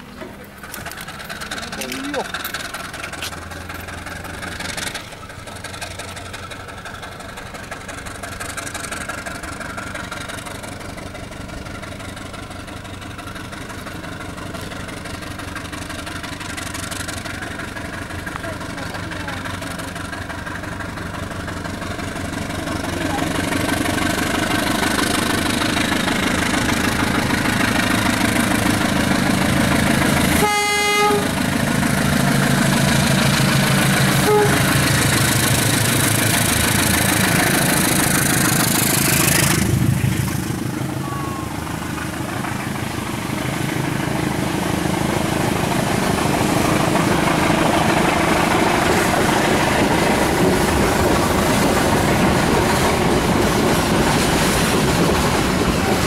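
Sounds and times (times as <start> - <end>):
diesel locomotive passing: 0.0 - 56.0
train carriages rolling past: 0.0 - 56.0
train horn blast: 30.4 - 31.4, 34.2 - 34.8.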